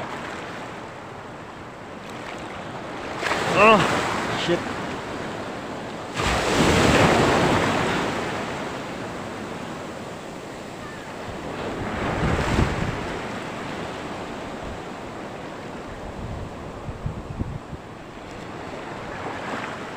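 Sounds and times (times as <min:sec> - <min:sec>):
sea waves surging: 0:00.0 - 0:19.9
wind buffeting microphone: 0:10.7 - 0:19.5.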